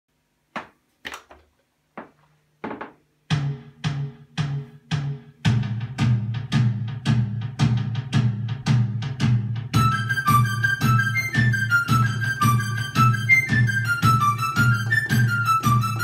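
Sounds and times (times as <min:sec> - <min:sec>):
keyboard drum pattern: 0:02.8 - 0:16.0
bass line: 0:03.3 - 0:16.0.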